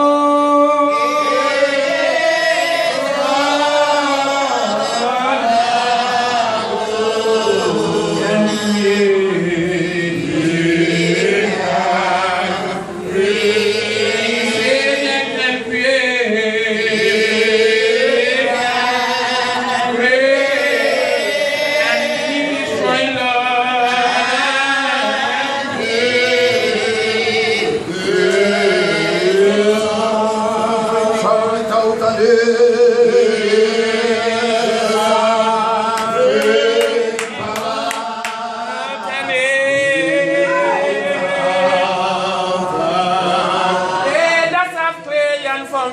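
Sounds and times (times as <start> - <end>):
man singing into a microphone: 0.0 - 12.8.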